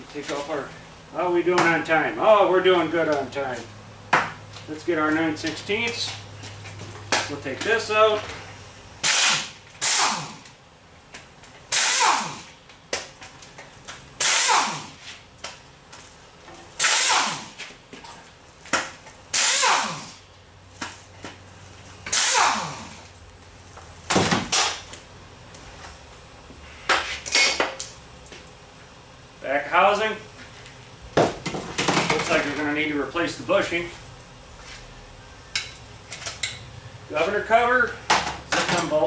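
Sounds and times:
pneumatic impact wrench bursts: 9.0s - 10.6s, 11.7s - 12.6s, 14.2s - 15.2s, 16.8s - 17.7s, 19.3s - 20.2s, 22.0s - 23.1s.

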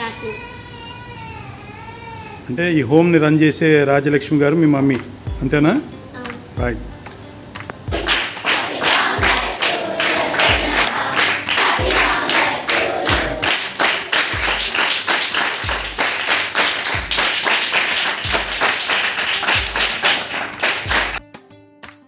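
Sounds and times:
children clapping: 7.9s - 21.2s.

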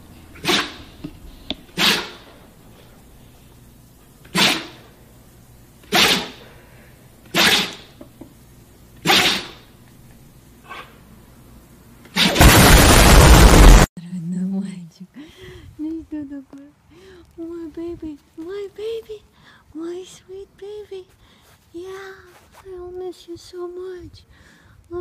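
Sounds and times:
dog sneezing: 0.4s - 0.9s, 1.8s - 2.3s, 4.3s - 4.8s, 5.8s - 6.4s, 7.3s - 7.9s, 9.0s - 9.6s, 10.6s - 11.0s
explosion sound effect: 12.2s - 13.9s.

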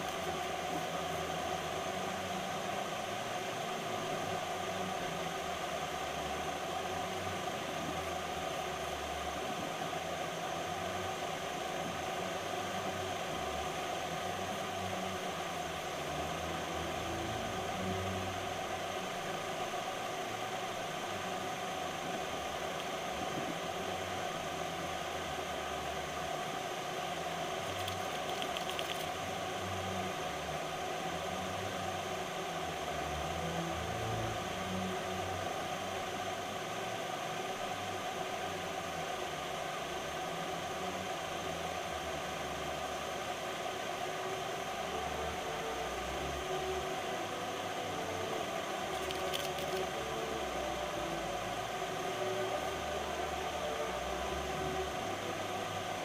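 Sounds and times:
faint whir: 0.0s - 56.0s
steady background hiss: 0.0s - 56.0s.

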